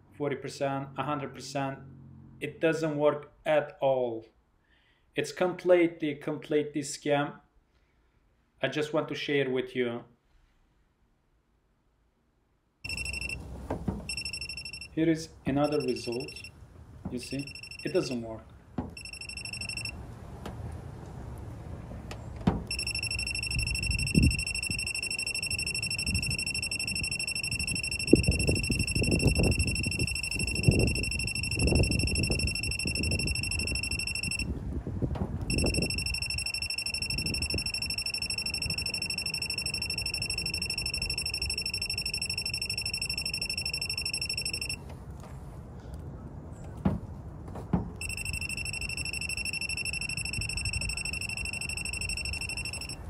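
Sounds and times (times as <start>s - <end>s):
high-pitched electronic tone: 12.9s - 13.4s, 14.1s - 14.9s, 15.6s - 16.5s, 17.3s - 18.2s, 19.0s - 20.0s, 22.7s - 34.5s, 35.5s - 44.8s, 48.0s - 53.0s.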